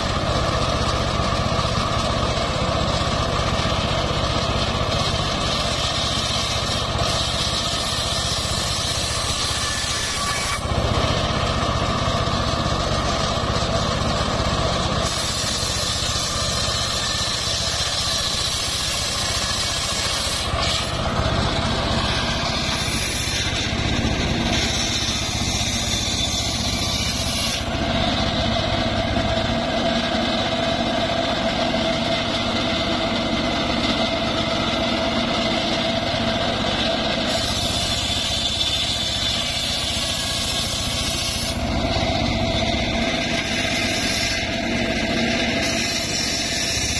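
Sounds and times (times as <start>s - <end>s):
circular saw blade ripping wood: 4.8s - 13.9s, 14.9s - 28.1s, 34.0s - 46.9s.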